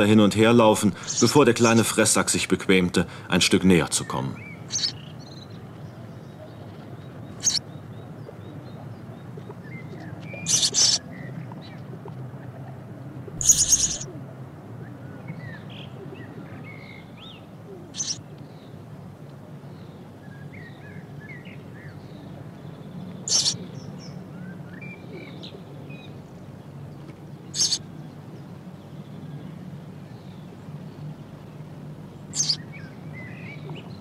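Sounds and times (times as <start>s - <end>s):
faint sparrow chirping: 0.8s - 1.9s, 4.0s - 11.3s, 13.3s - 14.2s, 15.4s - 18.7s, 19.7s - 26.8s, 27.5s - 28.1s, 32.1s - 34.0s
sparrow harsh calls: 0.9s - 1.9s, 4.0s - 5.4s, 7.3s - 7.8s, 9.7s - 11.3s, 13.3s - 14.2s, 15.4s - 18.2s, 23.2s - 24.2s, 27.5s - 27.8s, 32.2s - 33.8s.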